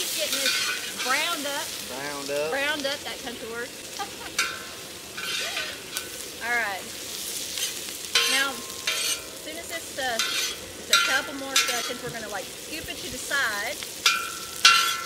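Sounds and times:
steel ringing: 0.0 - 15.0
vegetables sizzling in oil: 0.0 - 15.0
metal spatula scraping steel: 0.1 - 1.9, 4.2 - 6.3, 7.0 - 12.6, 14.0 - 15.0.

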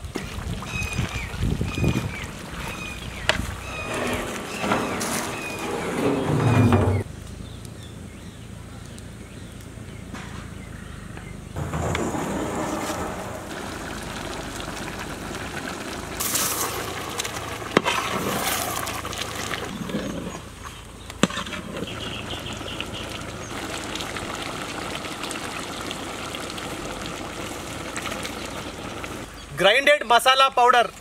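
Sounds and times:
food sizzling and bubbling in pan: 0.0 - 5.6, 11.6 - 29.3.

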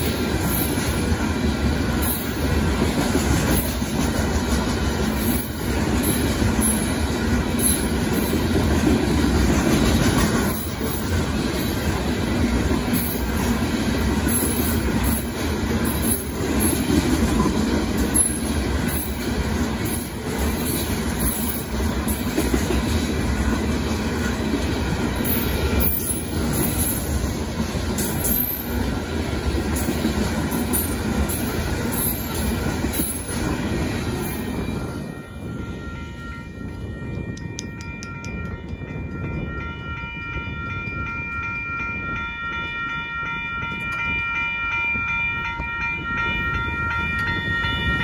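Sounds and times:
crossing signal bell ringing: 0.0 - 9.0, 9.7 - 23.2, 24.2 - 48.0
train rolling heavy rumble: 0.0 - 48.0.

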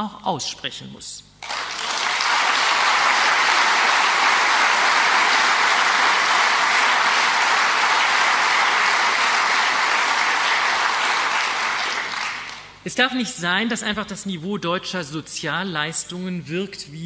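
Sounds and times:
audience applauding: 1.4 - 12.7.

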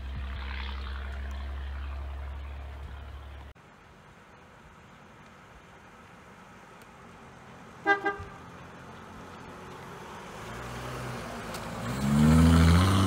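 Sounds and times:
car engine passing: 0.0 - 3.5, 7.2 - 13.0
car horn toots: 7.8 - 8.4.

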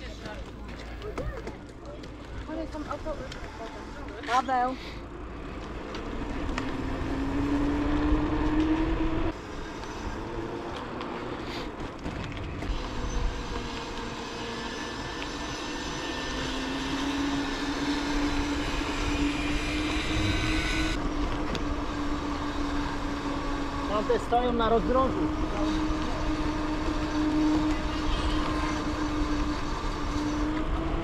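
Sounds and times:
bike tyre hum on pavement: 0.0 - 31.0
rough rumble: 16.8 - 23.9.

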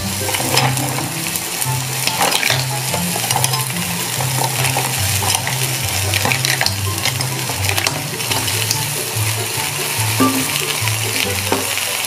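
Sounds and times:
shellfish sizzling in a pan: 0.0 - 12.0
shells clattering against pan: 2.0 - 8.8.

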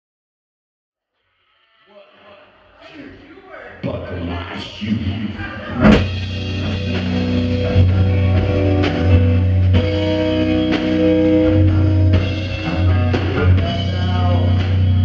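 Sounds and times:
drum kit: 5.7 - 15.0
electric guitars sustained chords: 5.8 - 15.0.

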